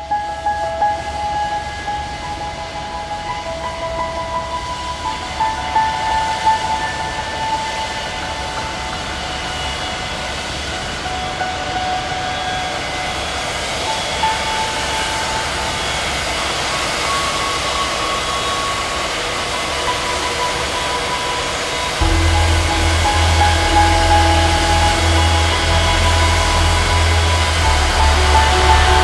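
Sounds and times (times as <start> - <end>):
gyrocopter engine and propeller: 7.0 - 29.0.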